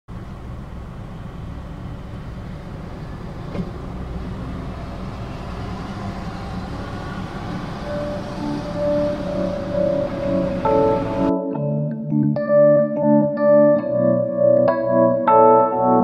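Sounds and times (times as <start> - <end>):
car engine idling: 0.1 - 11.3
light mallet music: 7.6 - 16.0.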